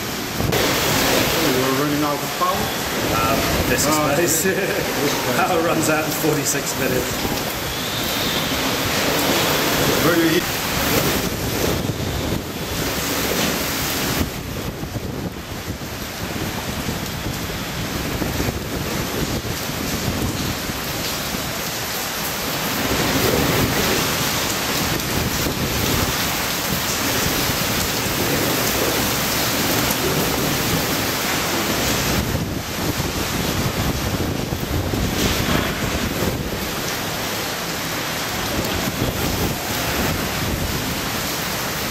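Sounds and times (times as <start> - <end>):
strong wind blowing: 0.0 - 21.9, 22.5 - 41.9
heavy driven rain: 0.0 - 41.9.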